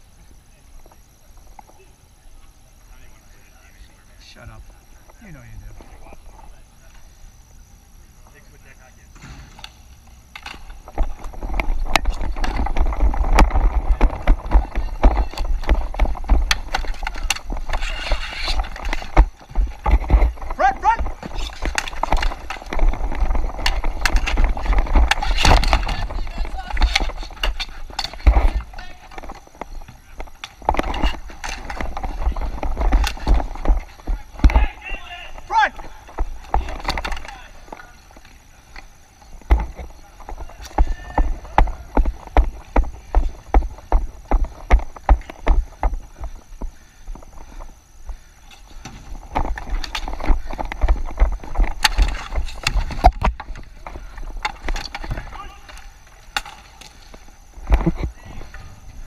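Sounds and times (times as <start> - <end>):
hockey sticks and ball clattering: 9.5 - 58.8
running footsteps: 10.5 - 59.0.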